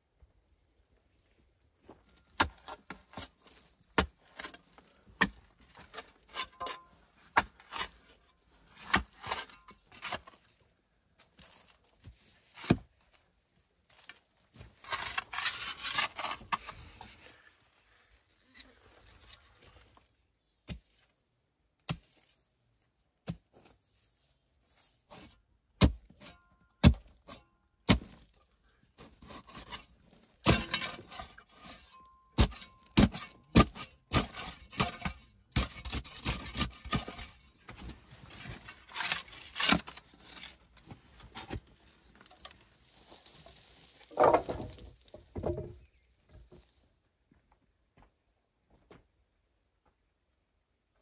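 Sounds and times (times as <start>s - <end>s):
tools scraping wood: 5.7s - 8.0s, 44.1s - 45.8s.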